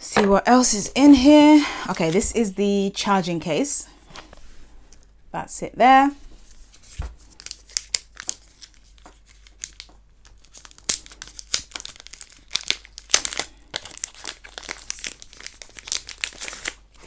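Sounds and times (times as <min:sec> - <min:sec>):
plastic wrappers crinkling: 0:06.7 - 0:17.0.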